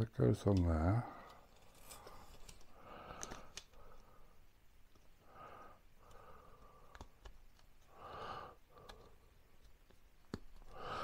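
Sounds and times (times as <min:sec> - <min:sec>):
faint plastic clicks: 0:02.3 - 0:04.0, 0:06.0 - 0:07.9
person breathing out heavily: 0:07.9 - 0:09.2, 0:10.7 - 0:11.0.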